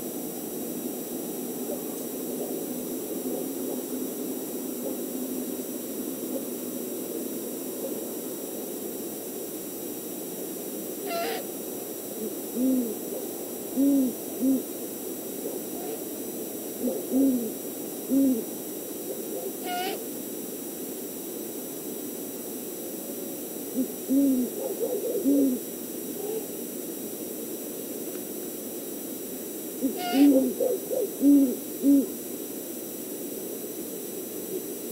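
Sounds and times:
owls hooting: 0:11.0 - 0:11.5, 0:12.2 - 0:14.7, 0:16.8 - 0:18.5, 0:19.1 - 0:20.0, 0:23.8 - 0:25.6, 0:29.8 - 0:32.2.

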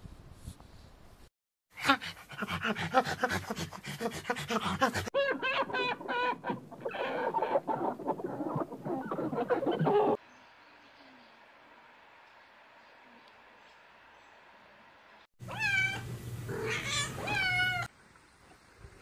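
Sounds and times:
chicken calls: 0:05.2 - 0:10.2
chickens clucking: 0:05.2 - 0:10.2.

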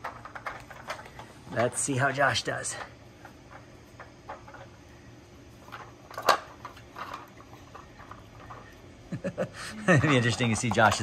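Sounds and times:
plastic pieces clicking and rattling: 0:00.0 - 0:01.9, 0:05.7 - 0:08.8, 0:09.8 - 0:11.0.

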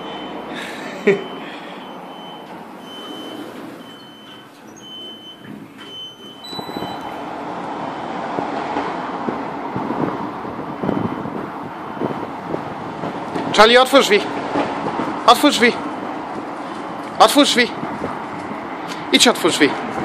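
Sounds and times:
high electronic beep: 0:01.2 - 0:07.2
rushing outdoor noise: 0:06.4 - 0:20.0.

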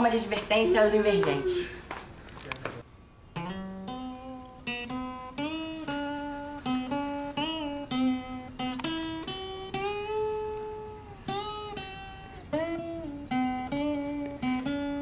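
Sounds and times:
acoustic guitar played slowly: 0:03.3 - 0:15.0.

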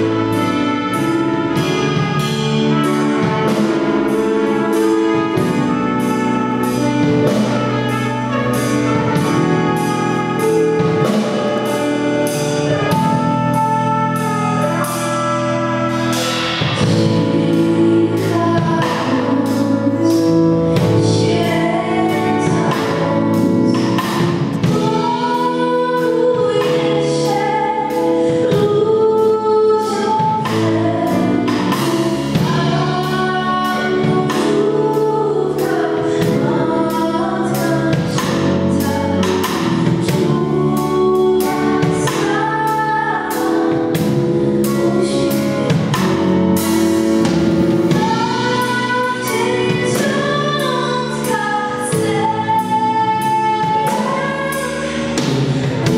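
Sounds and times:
instrumental accompaniment with beat: 0:00.0 - 0:55.9
woman singing into microphone: 0:16.8 - 0:46.8, 0:47.8 - 0:55.9.

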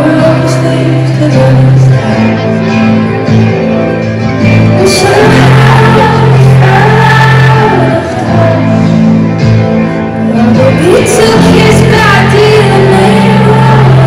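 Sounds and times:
woman singing slow song: 0:00.0 - 0:02.7, 0:04.6 - 0:09.2, 0:10.2 - 0:14.0
acoustic guitar: 0:00.0 - 0:14.0.

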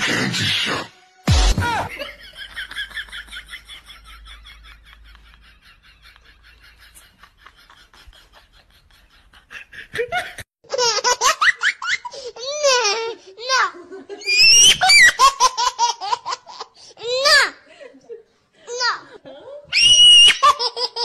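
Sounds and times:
high-pitched laughter: 0:01.7 - 0:16.5, 0:19.0 - 0:21.0.

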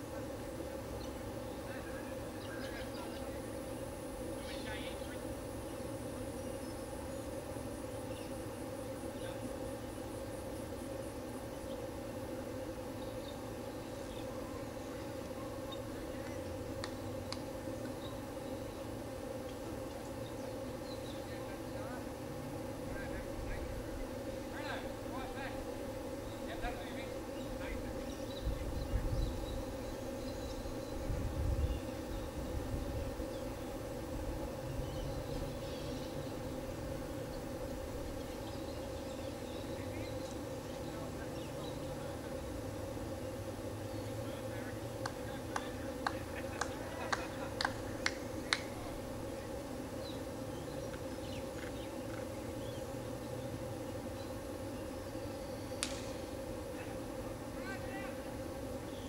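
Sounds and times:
steady low hum: 0:00.0 - 0:59.0
sharp evenly spaced clicks: 0:16.2 - 0:18.0, 0:45.0 - 0:48.7
wind rumble on microphone: 0:28.4 - 0:29.6, 0:31.0 - 0:33.1.

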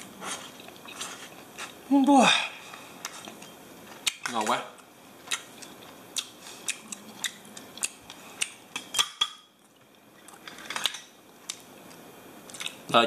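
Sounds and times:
tableware clicking and clinking: 0:08.8 - 0:09.5, 0:10.4 - 0:11.1.

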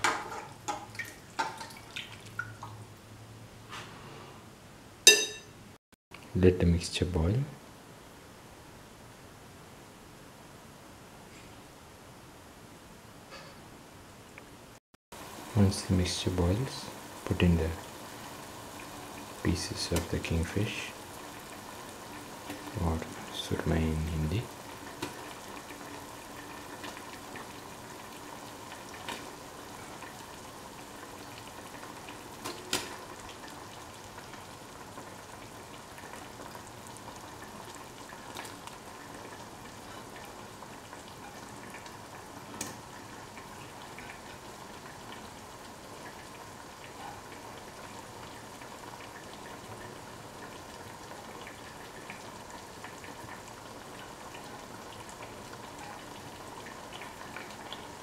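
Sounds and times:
curry bubbling in a pot: 0:15.2 - 0:58.0.

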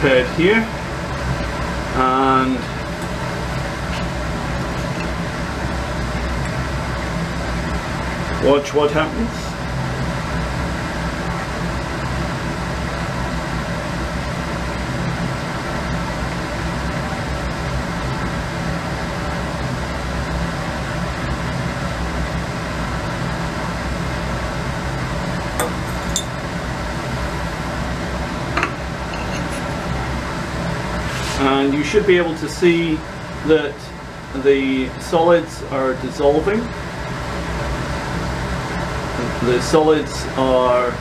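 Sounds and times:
steady machine hum: 0:00.0 - 0:41.0
glass clinks: 0:25.6 - 0:26.4.

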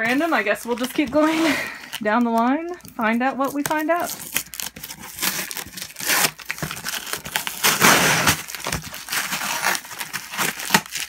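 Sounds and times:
packing tape peeling off cardboard: 0:03.5 - 0:11.0.

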